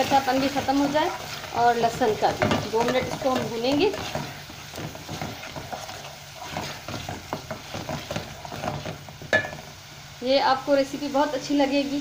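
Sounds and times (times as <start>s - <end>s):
soft sizzle: 0.0s - 12.0s
spoon scraping a metal pot: 0.4s - 9.6s.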